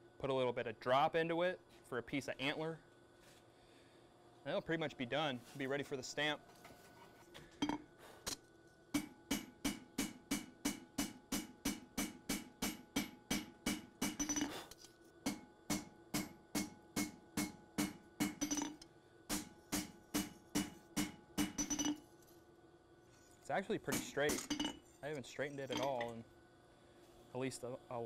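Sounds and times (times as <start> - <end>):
hammer striking blade on anvil: 9.0 - 14.7, 15.3 - 22.0, 23.8 - 24.8.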